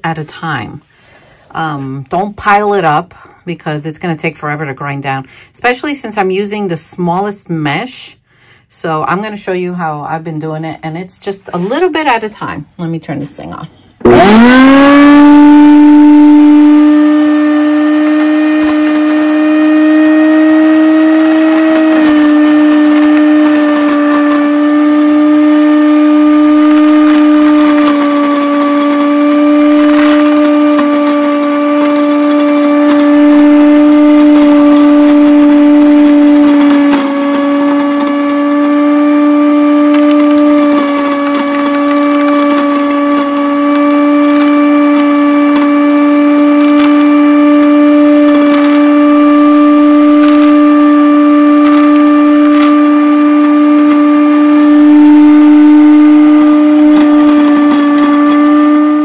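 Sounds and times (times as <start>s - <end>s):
electric grinder motor whine: 14.0s - 59.0s.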